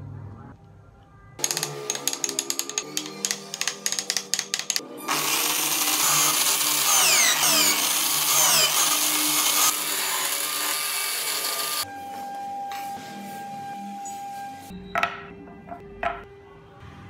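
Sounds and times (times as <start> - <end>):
chisel scraping spinning wood: 1.4 - 10.4
electric drill whirring: 1.4 - 11.8.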